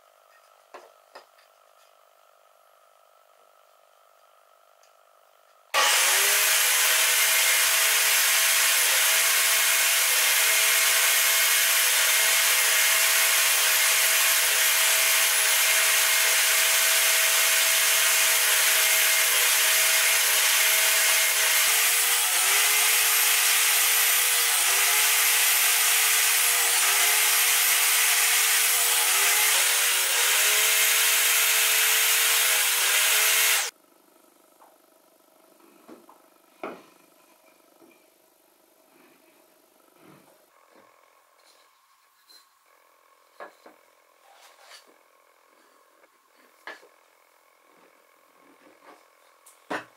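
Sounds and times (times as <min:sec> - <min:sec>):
table saw cutting wood: 0:05.8 - 0:33.7.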